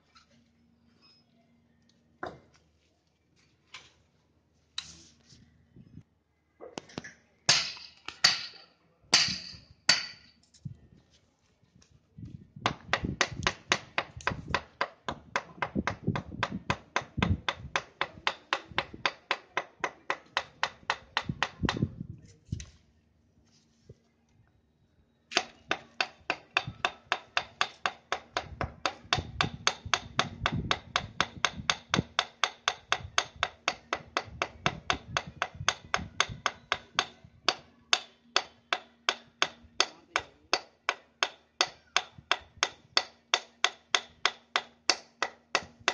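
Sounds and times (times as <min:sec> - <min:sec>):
hammer striking chisel: 0:07.5 - 0:10.4, 0:12.6 - 0:21.9, 0:25.3 - 0:45.9.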